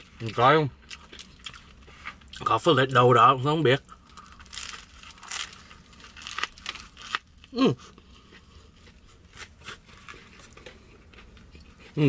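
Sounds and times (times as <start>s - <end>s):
bread crunching when bitten: 3.8s - 12.0s.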